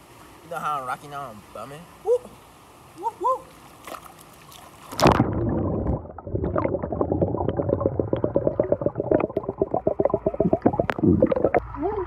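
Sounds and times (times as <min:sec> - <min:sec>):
splash into water: 0:03.8 - 0:06.0
underwater gurgling and bubbling: 0:04.9 - 0:12.0.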